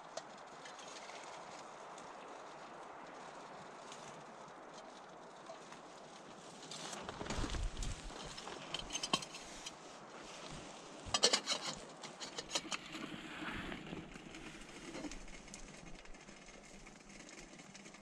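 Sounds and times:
metallic clinks and rattles: 7.6s - 9.8s, 11.1s - 12.9s.

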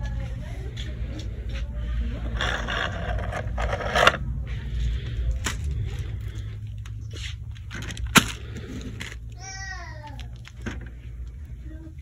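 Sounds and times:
steady low rumble: 0.0s - 12.0s
packages rustling and scraping: 1.1s - 9.4s.

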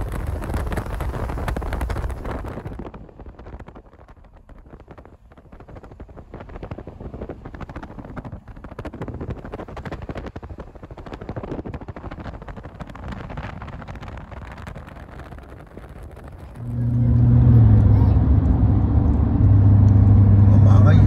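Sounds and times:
road and wind noise: 0.0s - 21.0s
loud steady low hum: 16.4s - 21.0s.

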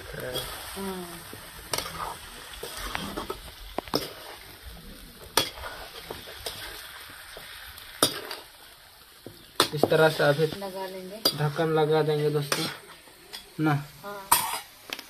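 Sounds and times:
food sizzling in hot oil: 0.0s - 15.0s
metal spatula scraping pan: 14.3s - 14.8s.

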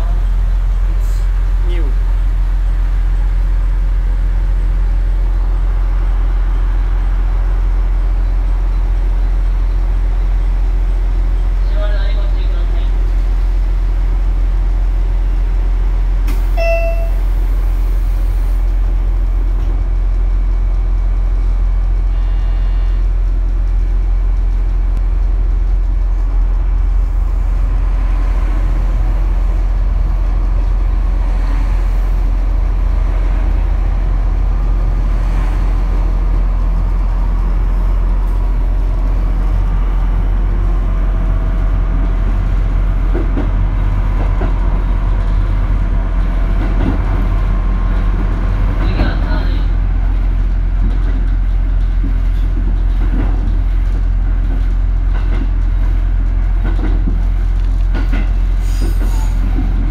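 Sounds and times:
diesel train engine rumble: 0.0s - 59.9s.

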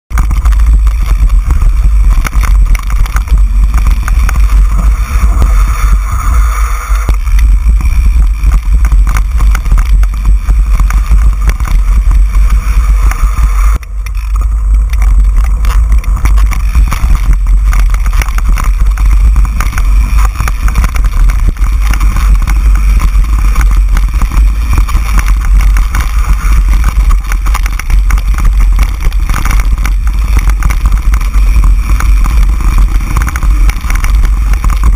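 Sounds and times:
bike rattling on rough ground: 0.1s - 34.9s
wind rumble on microphone: 0.1s - 34.9s.

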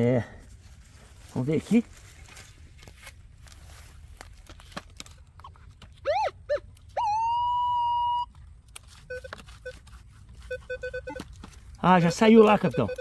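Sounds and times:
metal detector tones: 8.9s - 13.0s
metal detector short low beeps: 10.5s - 11.2s, 12.0s - 13.0s.

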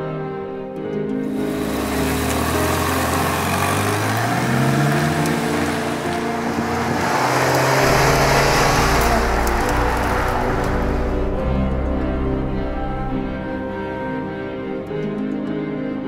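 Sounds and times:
car engine accelerating: 1.2s - 13.2s.

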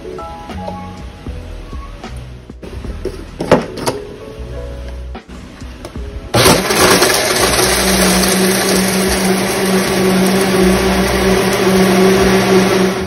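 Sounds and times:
blender running: 6.4s - 13.0s.

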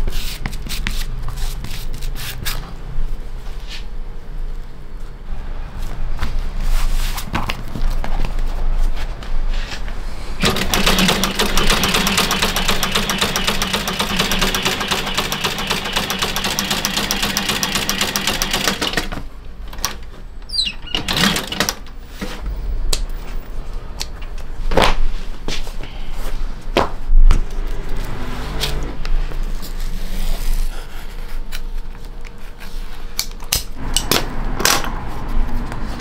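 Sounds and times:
sewing machine stitching: 10.4s - 19.2s, 20.8s - 21.9s.

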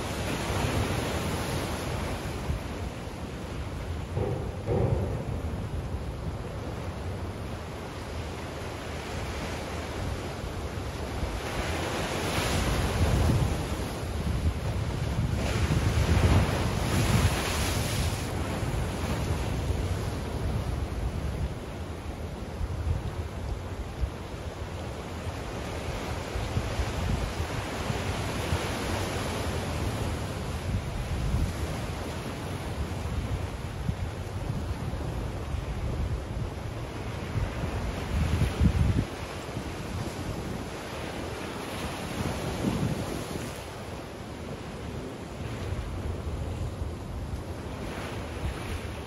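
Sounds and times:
waves washing against shore: 0.0s - 49.0s
wind rumbling on microphone: 0.0s - 49.0s.

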